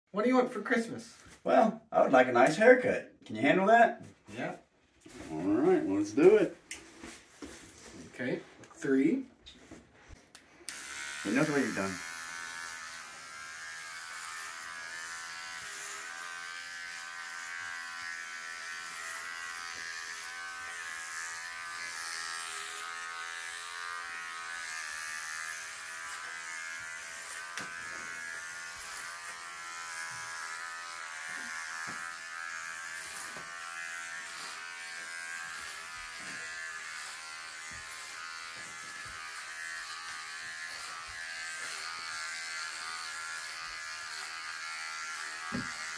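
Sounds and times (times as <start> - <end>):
electric hair clippers buzzing: 10.3 - 45.9.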